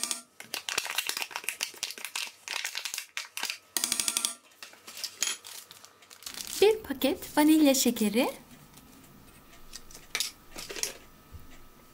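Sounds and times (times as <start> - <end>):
cream cheese pack crinkling: 0.4 - 3.7, 4.6 - 6.9.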